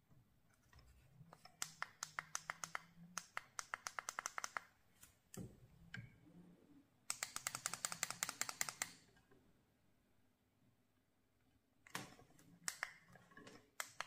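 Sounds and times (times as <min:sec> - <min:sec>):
rapid sharp clicks: 0:01.6 - 0:04.7, 0:07.1 - 0:09.0.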